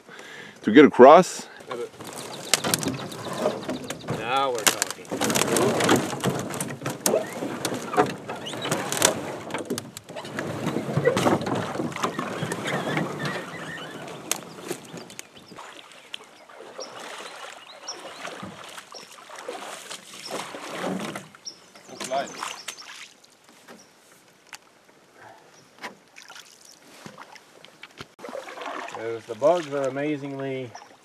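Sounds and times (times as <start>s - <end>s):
canoe pulled through shallow water: 0.0s - 31.0s
canoe hull scraping and knocking: 1.5s - 24.5s, 26.8s - 31.0s
branches cracking underfoot: 1.7s - 16.6s.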